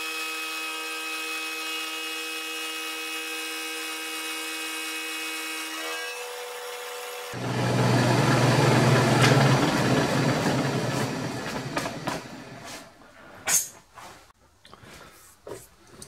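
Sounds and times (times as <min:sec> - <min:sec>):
milling machine cutting metal: 0:07.4 - 0:12.6.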